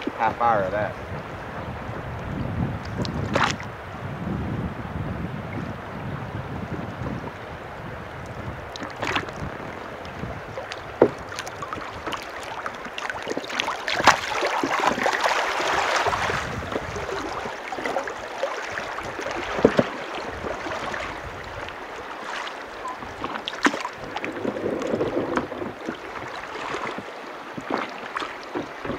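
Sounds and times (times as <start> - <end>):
river water splashing against raft: 0.0 - 4.0, 5.4 - 28.9
sharp knocks: 11.0 - 11.2.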